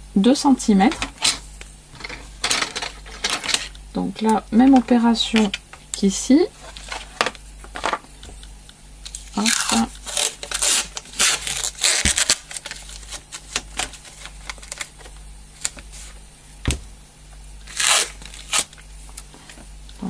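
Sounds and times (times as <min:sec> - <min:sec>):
tape crinkling and rubbing: 0:09.0 - 0:16.3, 0:17.7 - 0:18.8
tape ripping off roll: 0:09.4 - 0:14.9, 0:17.7 - 0:18.8
thump on table: 0:16.6 - 0:16.8.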